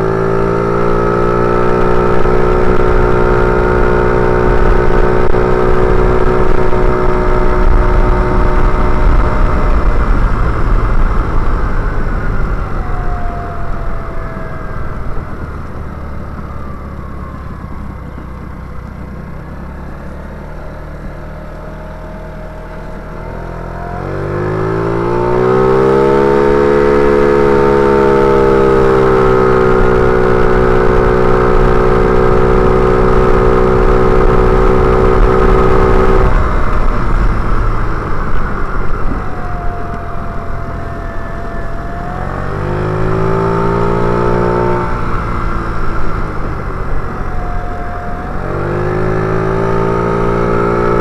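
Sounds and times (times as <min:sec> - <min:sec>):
scooter engine revving: 0:19.3 - 0:51.0.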